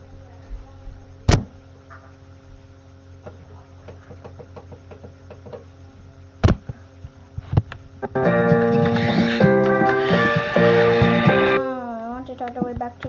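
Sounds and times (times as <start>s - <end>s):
music: 8.0s - 11.8s.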